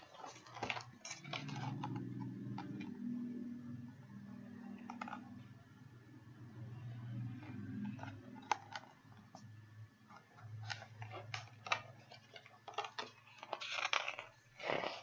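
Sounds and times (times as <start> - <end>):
book pages turning with clicks: 0.0 - 3.1, 6.8 - 15.0
low steady hum: 0.0 - 15.0.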